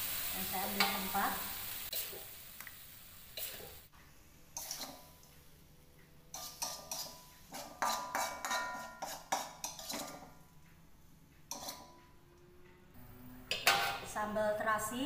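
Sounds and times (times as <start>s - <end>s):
metal spatula scraping a wok: 3.3s - 3.8s, 4.4s - 5.2s, 6.3s - 10.5s, 11.5s - 12.0s, 13.3s - 14.2s.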